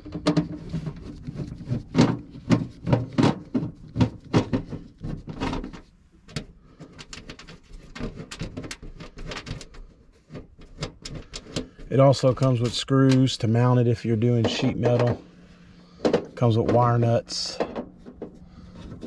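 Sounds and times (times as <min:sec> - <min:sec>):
clicks and knocks of small parts: 0:00.0 - 0:11.9.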